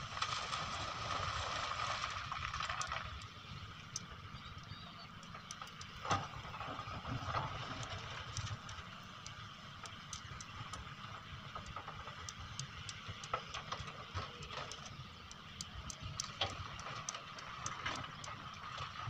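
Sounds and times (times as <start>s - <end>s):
distant excavator engine rumble: 0.0s - 19.0s
faint sharp ticks: 7.8s - 10.9s, 11.5s - 18.9s.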